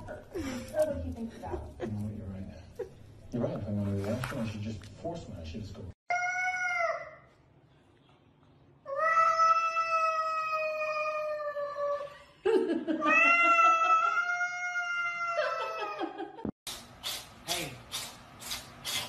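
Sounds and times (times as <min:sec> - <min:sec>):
cat yowling: 0:13.0 - 0:15.9.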